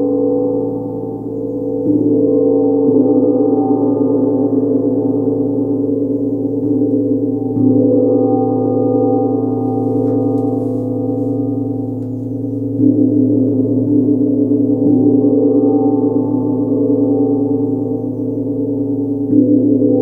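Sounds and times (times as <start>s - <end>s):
gong ringing hum: 0.0s - 20.0s.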